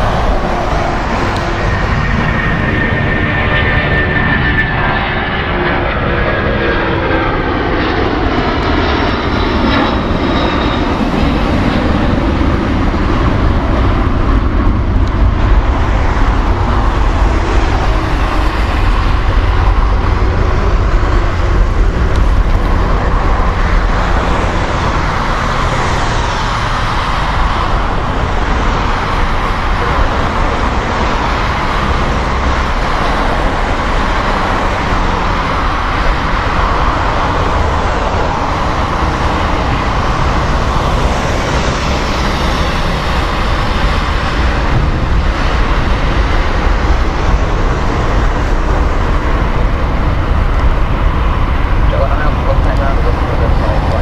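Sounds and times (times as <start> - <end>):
jet engine deep roar: 0.0 - 54.0
jet engines whining: 0.0 - 54.0.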